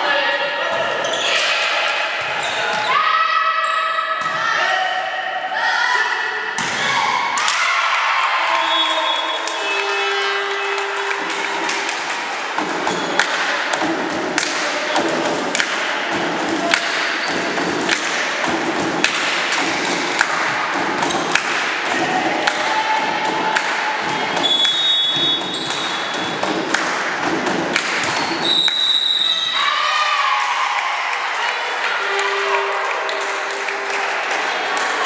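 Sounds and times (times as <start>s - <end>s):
whistle: 8.6s - 10.2s, 24.4s - 26.2s, 28.1s - 29.6s
spectators thumping a beat: 10.4s - 29.0s.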